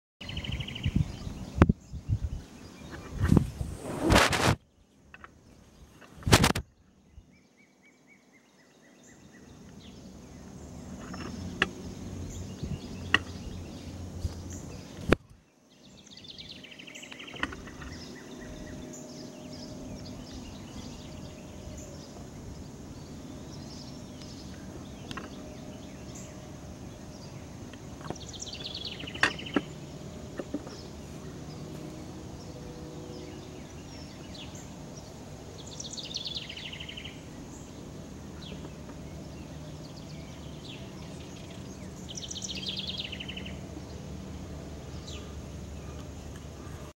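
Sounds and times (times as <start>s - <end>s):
faint high whine: 0.2s - 46.9s
sharp clicks: 6.1s - 6.6s
low background rumble: 9.3s - 16.5s
bird chirps: 15.7s - 44.0s.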